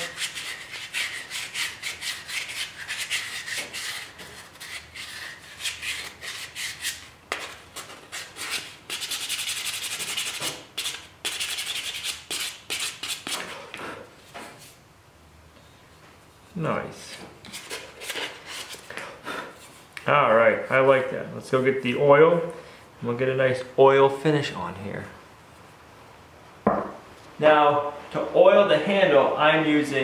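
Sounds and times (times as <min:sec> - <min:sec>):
sandpaper rasping on wood: 0:00.0 - 0:13.8.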